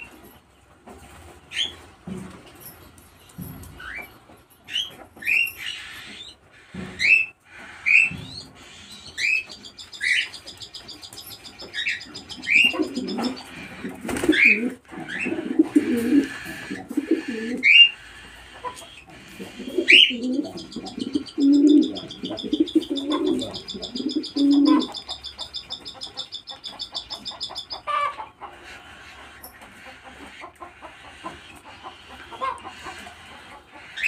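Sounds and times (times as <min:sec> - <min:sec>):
cockatiels chirping: 0:04.7 - 0:34.0
pigeons cooing: 0:05.7 - 0:25.8.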